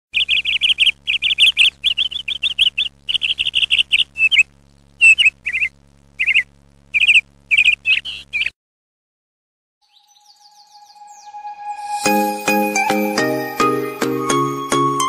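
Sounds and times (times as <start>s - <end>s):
small bird chirping: 0.1s - 8.5s, 9.8s - 11.4s
faint low hum: 0.2s - 8.5s.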